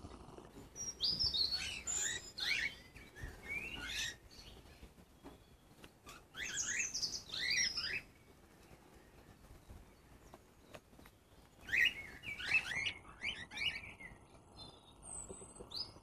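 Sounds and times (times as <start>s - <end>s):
cockatiels chirping and whistling: 0.8s - 4.6s, 6.0s - 8.1s, 11.6s - 14.1s.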